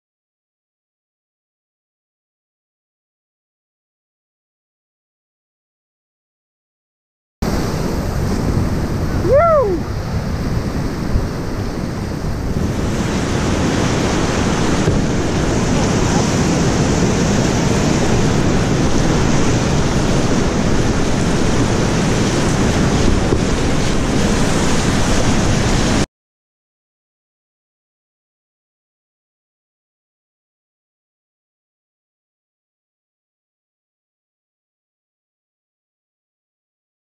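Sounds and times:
whitewater rapids rushing: 7.4s - 26.1s
wind buffeting microphone: 7.4s - 26.1s.

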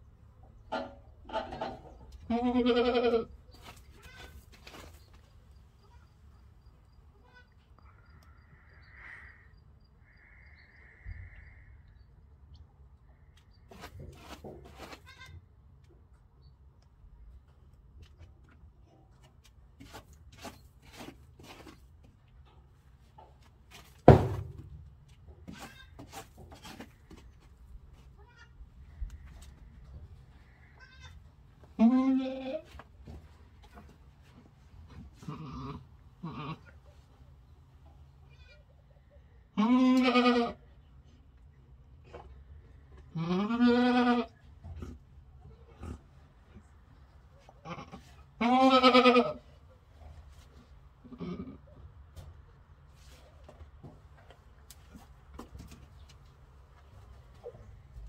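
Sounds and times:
goat bleating: 0.7s - 4.4s, 14.9s - 15.4s, 28.2s - 28.6s, 30.3s - 32.8s, 35.2s - 36.8s, 39.6s - 40.6s, 43.0s - 44.4s, 47.6s - 49.4s, 51.0s - 51.6s
loud thump: 24.1s - 24.7s.

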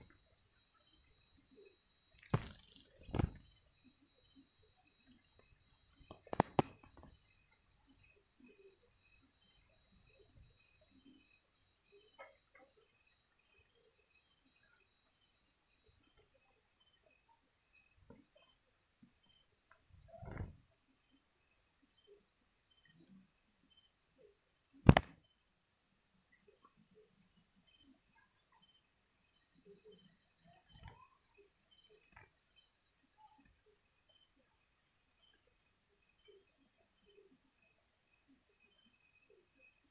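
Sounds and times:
night insects trilling: 0.0s - 39.9s
sharp click: 2.2s - 3.4s, 6.2s - 7.0s, 24.9s - 25.2s.

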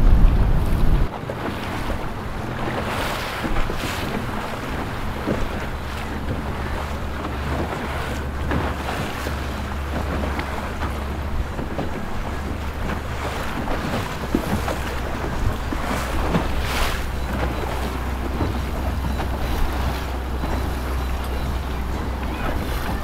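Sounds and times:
boat engines humming: 0.0s - 23.0s
water wash: 0.0s - 23.0s
wind on microphone: 0.0s - 23.0s.

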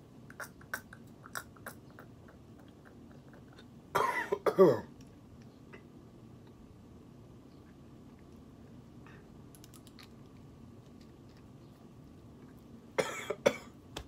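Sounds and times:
person coughing and clearing throat: 3.9s - 5.0s, 13.0s - 13.8s.

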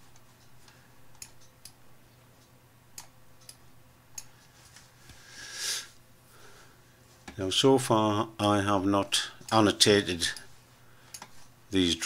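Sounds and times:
low steady hum: 0.0s - 12.0s
computer mouse clicking: 3.0s - 4.3s, 11.1s - 11.5s.

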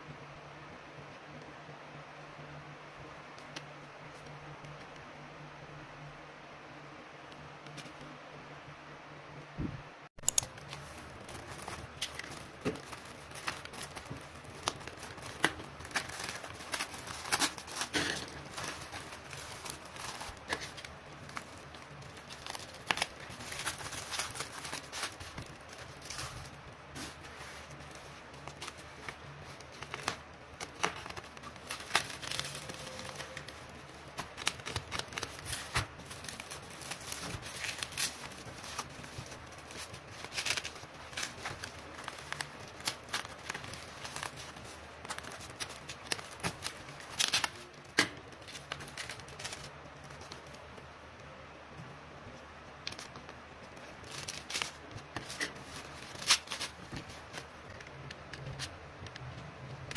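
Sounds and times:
sharp plastic crackles: 10.2s - 59.9s
plastic film crinkling and tearing: 10.4s - 50.9s, 52.8s - 58.8s.

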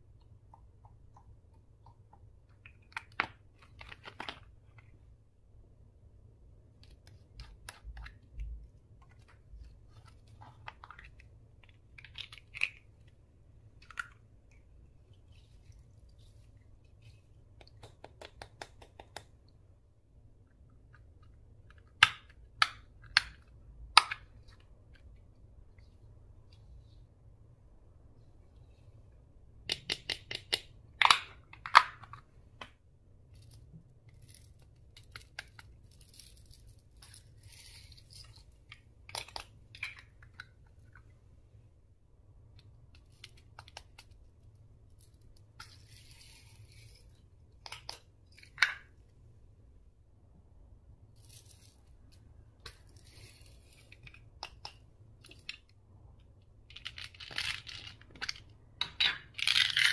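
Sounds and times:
soft crinkling rustles: 6.8s - 17.9s, 51.1s - 54.4s.

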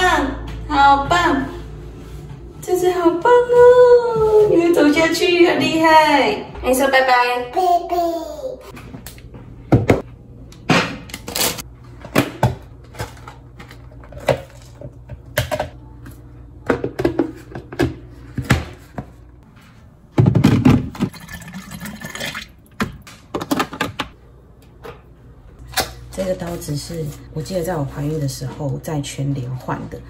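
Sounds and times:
kitchen containers knocking and clunking: 11.9s - 15.9s, 16.6s - 19.2s, 20.1s - 24.2s.

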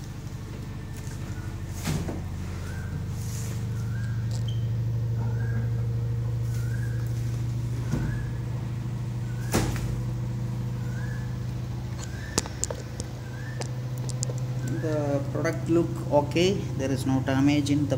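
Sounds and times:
washing machine humming: 0.0s - 17.9s.

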